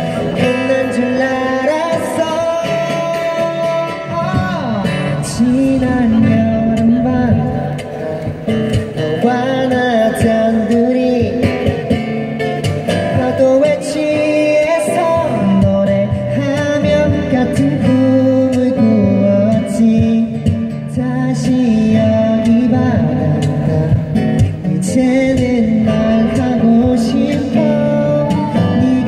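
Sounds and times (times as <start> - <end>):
man singing into microphone: 0.0 - 29.0
strummed acoustic guitars: 0.0 - 29.0.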